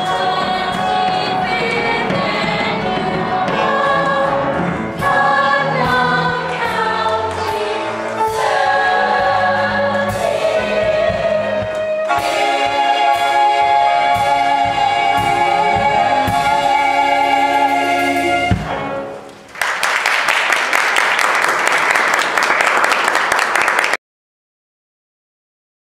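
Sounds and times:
cast singing with band: 0.0 - 18.8
audience applause: 19.3 - 24.0.

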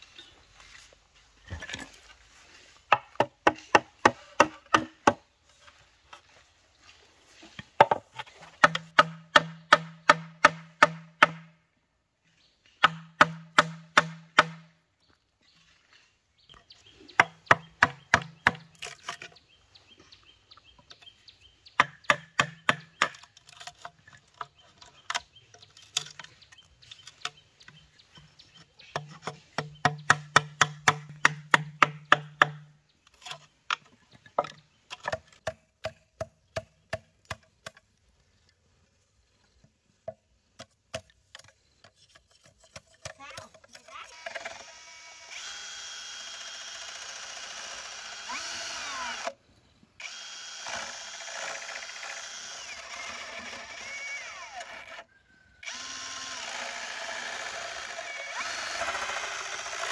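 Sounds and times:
tool knocking on bamboo: 2.9 - 5.2, 7.6 - 11.5, 12.8 - 14.7, 17.2 - 18.7, 21.8 - 23.2, 27.2 - 32.8.

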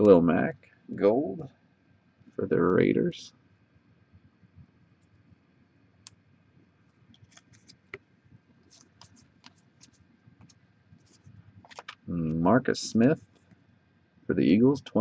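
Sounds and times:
trading cards clicking and scraping: 7.1 - 8.0, 8.6 - 12.1.

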